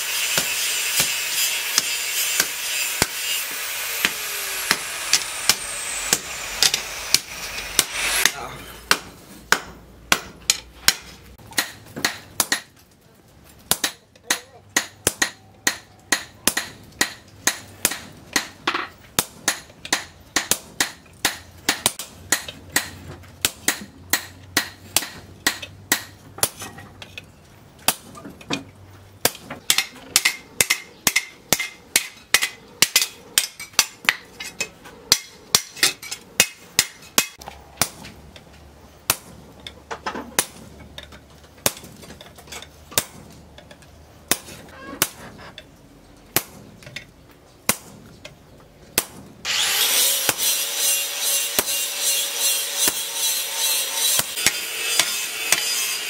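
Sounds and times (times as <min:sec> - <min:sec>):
hammer striking hot steel: 0:00.0 - 0:12.8, 0:13.7 - 0:26.7, 0:29.2 - 0:38.2, 0:39.0 - 0:39.8, 0:42.9 - 0:43.2, 0:46.3 - 0:46.6, 0:50.1 - 0:56.0.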